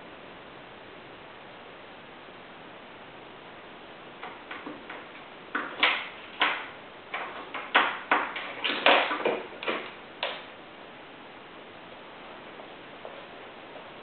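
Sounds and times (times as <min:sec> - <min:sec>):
plastic pen clattering on wood floor: 0:04.2 - 0:10.4.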